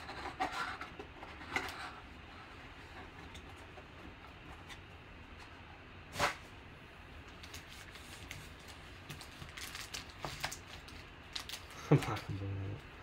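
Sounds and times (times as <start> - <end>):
foil packs rustling: 7.4 - 12.4.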